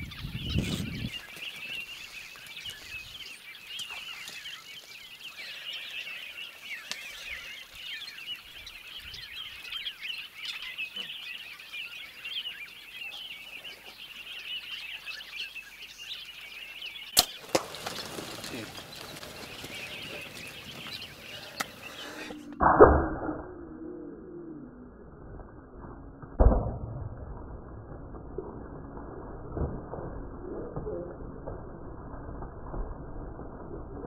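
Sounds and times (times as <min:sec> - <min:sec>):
birds chirping: 0:00.0 - 0:22.6
bow shot cracks: 0:17.2 - 0:17.9, 0:22.5 - 0:23.4, 0:26.3 - 0:28.1
herd scuffling as it bolts: 0:17.4 - 0:22.4.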